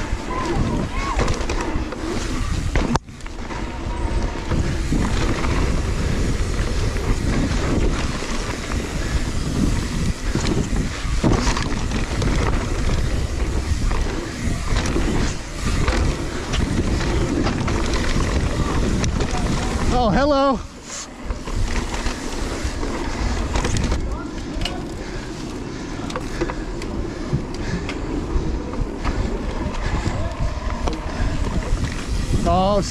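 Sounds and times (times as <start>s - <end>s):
bike knocks and rattles: 0.0s - 20.5s, 21.2s - 25.3s
tyres rolling on loose dirt: 0.0s - 32.9s
wind buffeting microphone: 0.0s - 32.9s.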